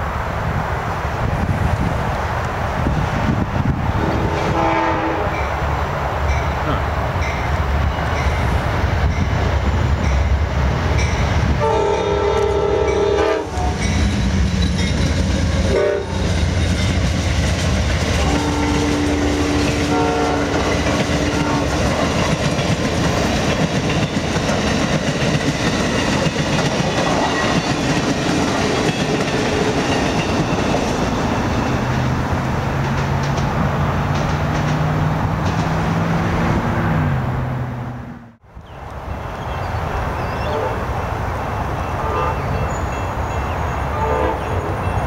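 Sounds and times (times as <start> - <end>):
train horn blasts: 4.0 - 5.5, 11.6 - 14.2, 15.6 - 16.3, 18.2 - 21.9, 43.9 - 44.9
train wheels clattering over rails: 13.5 - 36.2.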